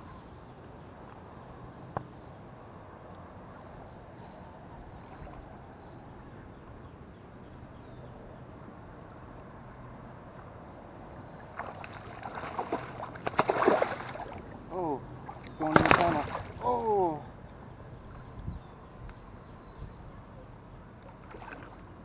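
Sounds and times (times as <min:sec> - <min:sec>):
water splashes: 0:11.3 - 0:17.2, 0:21.0 - 0:22.0
water lapping at edge: 0:11.3 - 0:17.3, 0:21.0 - 0:22.0.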